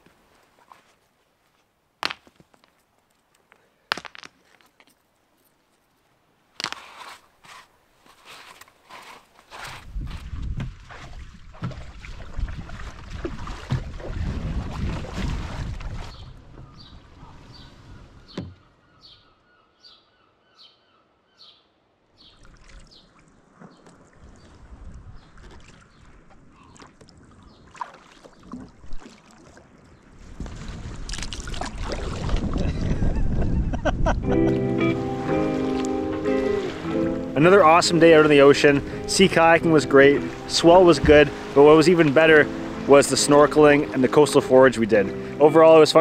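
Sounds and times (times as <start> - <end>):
beach stones clacking together: 2.0 - 5.5, 6.6 - 7.2
clog scuffing sand: 6.6 - 10.4
songbird chirping: 16.1 - 27.8.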